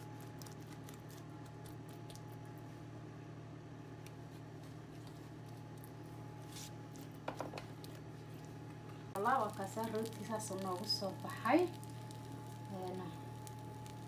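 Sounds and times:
steady low hum: 0.0 - 14.0
pastry brush tapping dough: 7.2 - 7.8.

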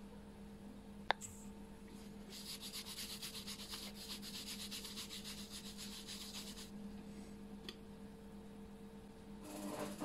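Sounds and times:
cotton pad scrubbing circuit board: 2.3 - 6.7.

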